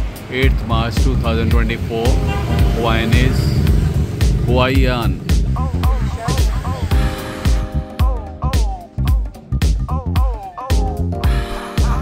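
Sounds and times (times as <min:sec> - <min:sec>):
music with steady beat: 0:00.0 - 0:12.0.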